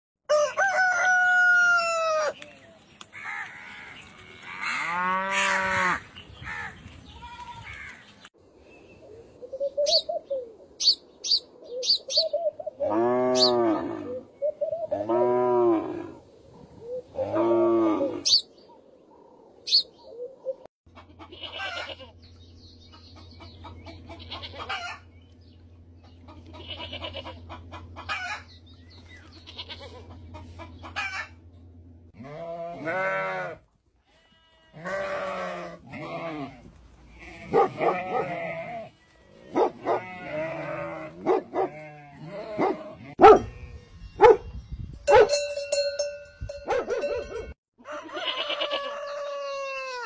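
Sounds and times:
chickens calling: 9.0s - 33.5s, 46.9s - 50.0s
steady low hum: 21.0s - 32.7s.

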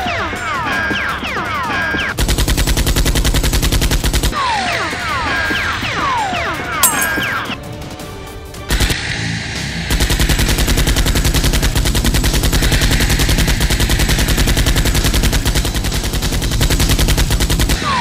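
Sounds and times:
rapid automatic gunfire: 14.6s - 17.8s.

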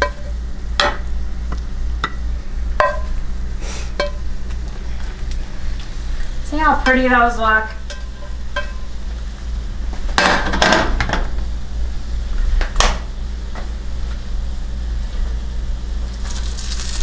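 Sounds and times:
steady low hum: 0.0s - 17.0s
frying pan and spatula clattering: 2.8s - 3.1s, 4.0s - 4.2s, 7.8s - 8.9s.

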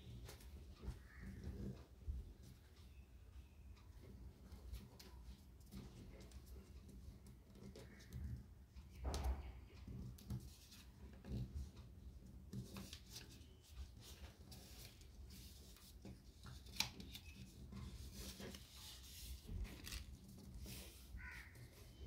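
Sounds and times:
paper crinkling and rustling: 12.6s - 22.0s.

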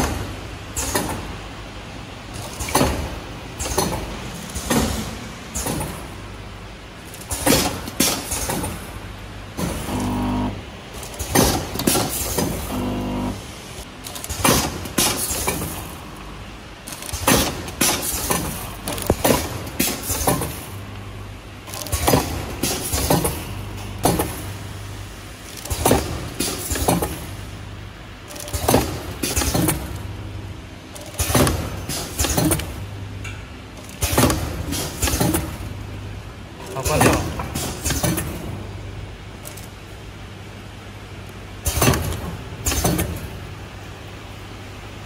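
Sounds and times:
packing machine clacks: 0.0s - 1.4s, 2.3s - 6.3s, 7.0s - 10.2s, 10.9s - 13.4s, 14.0s - 16.2s, 16.8s - 20.8s, 21.6s - 24.6s, 25.4s - 27.4s, 28.2s - 30.1s, 30.9s - 35.8s, 36.6s - 38.6s, 39.4s - 39.9s, 41.6s - 43.4s
low motor hum: 9.8s - 10.7s, 12.5s - 13.5s.

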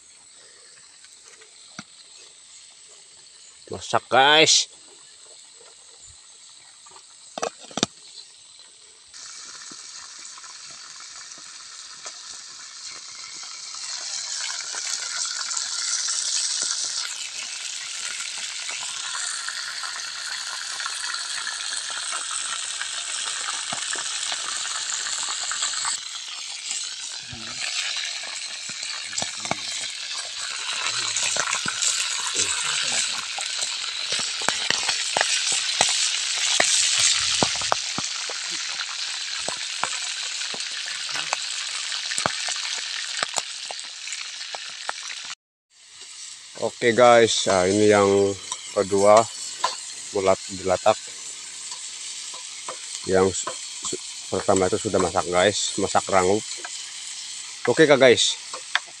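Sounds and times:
food deep-frying in oil: 0.0s - 59.0s.

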